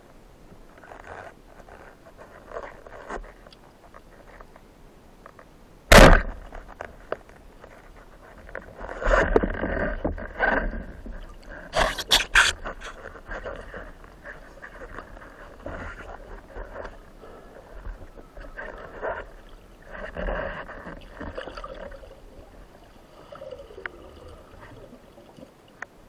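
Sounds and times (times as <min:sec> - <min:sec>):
gear rustling underwater: 0:00.0 - 0:05.6, 0:06.2 - 0:26.0
scraping and rustling: 0:00.7 - 0:04.6, 0:06.3 - 0:22.8
speargun firing crack: 0:05.9 - 0:06.4.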